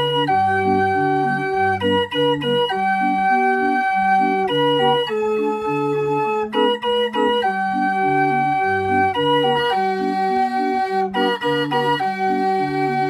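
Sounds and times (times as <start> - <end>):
barrel organ playing a tune: 0.0 - 13.0.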